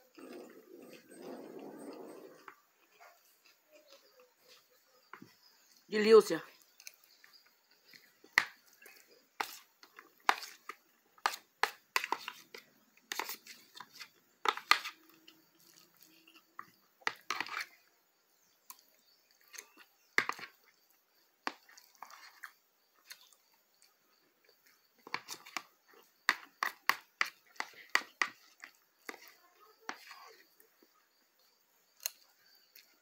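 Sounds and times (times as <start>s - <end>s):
wet chewing and mouth clicks: 6.5s - 17.5s, 18.6s - 30.8s, 31.9s - 33.0s
fork scraping a plastic bowl: 8.8s - 17.8s, 21.4s - 23.3s, 25.0s - 30.6s.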